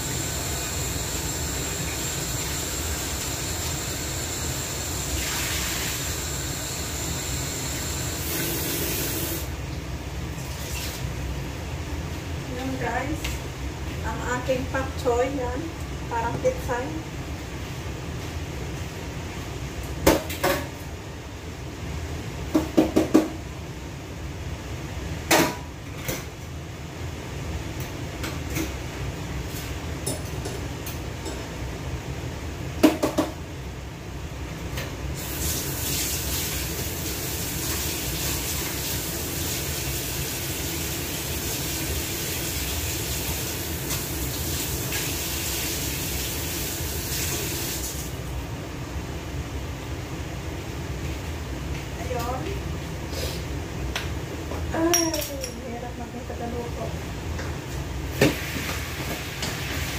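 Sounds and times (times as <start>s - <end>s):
water running into sink: 5.0s - 6.8s, 7.5s - 9.5s, 35.2s - 48.2s
kitchenware clattering: 54.8s - 55.6s.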